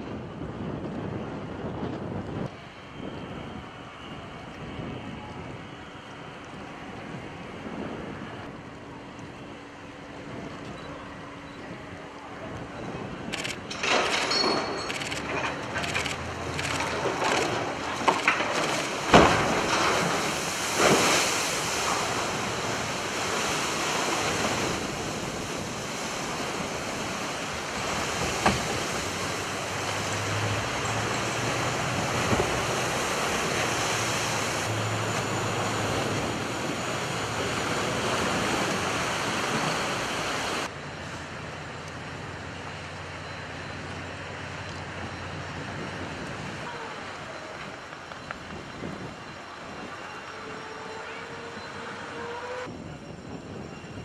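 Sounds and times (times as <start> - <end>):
water rushing and sloshing: 13.7 - 41.4.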